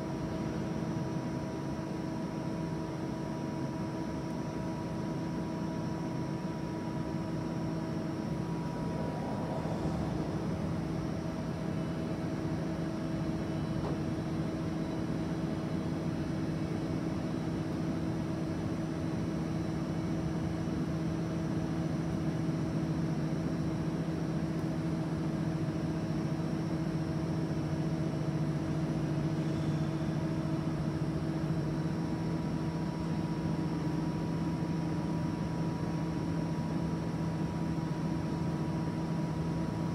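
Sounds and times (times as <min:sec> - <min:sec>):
electric machine hum: 0:06.9 - 0:13.4.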